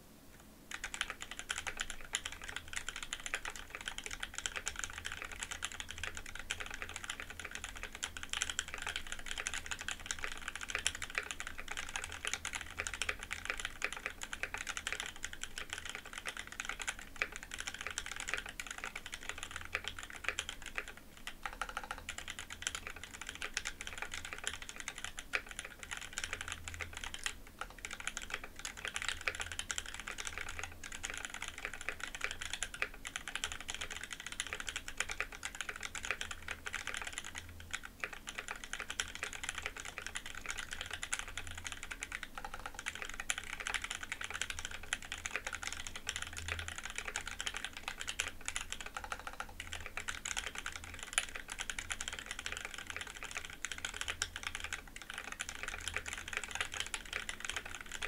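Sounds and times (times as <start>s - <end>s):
mechanical keyboard typing: 0.7s - 58.0s.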